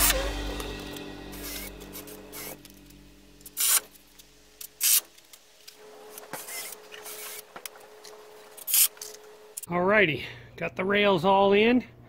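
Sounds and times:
sharp bursts of carpentry noise: 3.5s - 3.9s, 4.6s - 5.2s, 5.8s - 9.1s.

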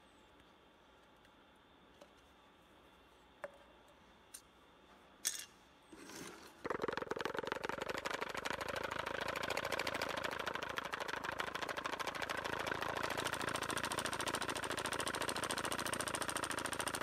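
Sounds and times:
aluminium cans clicking: 6.5s - 8.4s
engine fast even pulsing: 6.8s - 17.0s.

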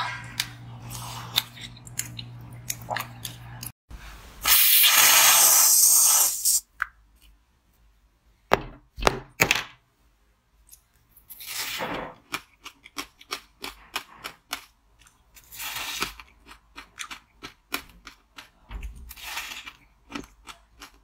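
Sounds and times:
whipped cream aerosol hissing: 4.4s - 6.6s.

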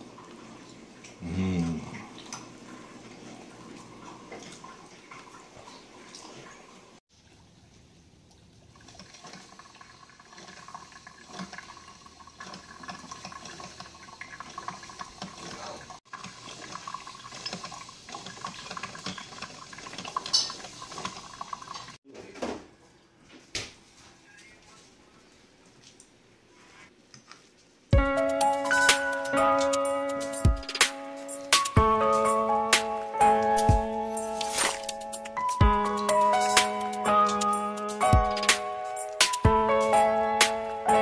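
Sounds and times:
coffee maker gurgling and hissing: 8.6s - 22.0s.

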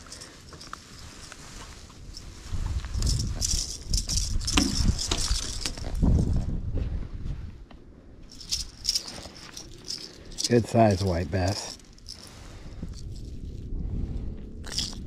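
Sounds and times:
fishing lure rattling: 0.0s - 1.4s, 3.0s - 6.0s, 8.3s - 13.3s, 14.6s - 15.0s
jacket fabric rustling: 8.3s - 12.7s.

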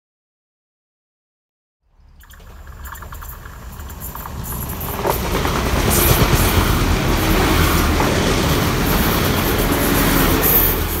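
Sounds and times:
train wheels rumbling over rails: 2.5s - 11.0s.

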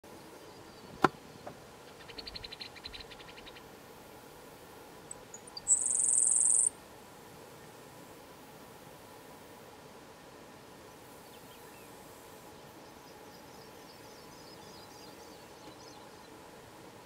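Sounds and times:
sparrow singing high buzz: 5.1s - 6.8s.

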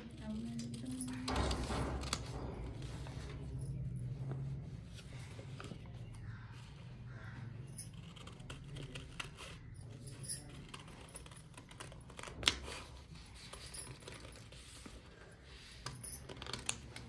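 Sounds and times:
scissors snipping paper: 7.9s - 13.0s
paper rustling: 7.9s - 17.0s.

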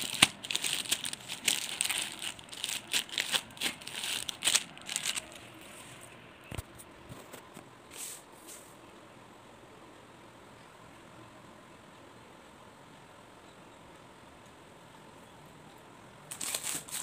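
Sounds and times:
plastic sleeves crinkling: 0.0s - 6.1s, 16.3s - 17.0s.

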